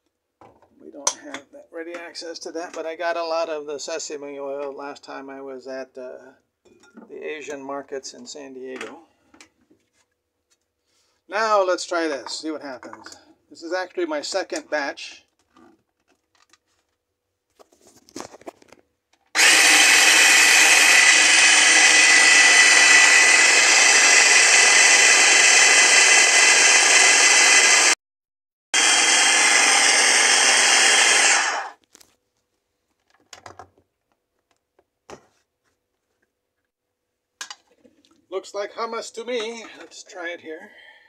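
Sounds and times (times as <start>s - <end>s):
food chopper motor running: 19.4s - 28.0s, 28.8s - 31.8s.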